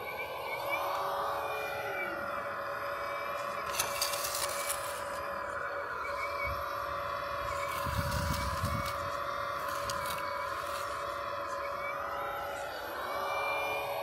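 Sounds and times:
hydraulic pump whining: 0.0s - 14.0s
metal bucket scraping dirt: 3.7s - 5.2s.

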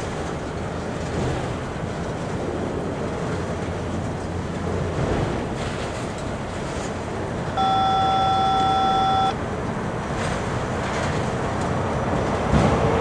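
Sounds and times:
freight train cars rolling: 0.0s - 13.0s
beep-like tone: 7.6s - 9.4s.

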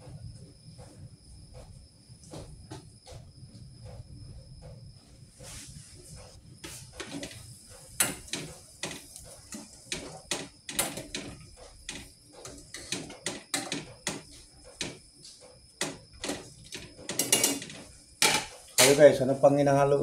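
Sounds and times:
cookware and utensils clattering: 16.2s - 19.0s.

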